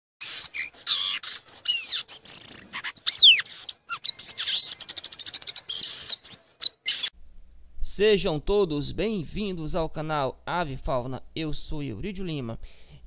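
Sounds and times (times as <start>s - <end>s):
bird chirps and whistles: 0.2s - 7.1s
falling bird whistle: 0.2s - 7.1s
fast bird trill: 0.2s - 7.1s.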